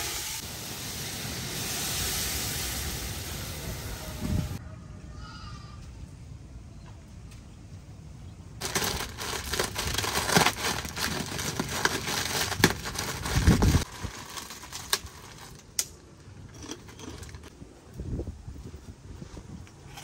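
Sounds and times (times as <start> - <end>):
crisp food crushed in plastic bag: 8.6 - 15.8.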